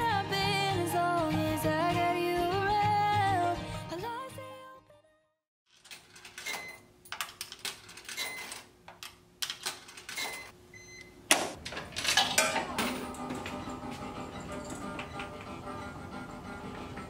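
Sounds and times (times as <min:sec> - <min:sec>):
coins clattering into slot: 0:05.7 - 0:10.5, 0:11.6 - 0:13.7
coins clinking: 0:05.7 - 0:10.5, 0:11.7 - 0:15.4.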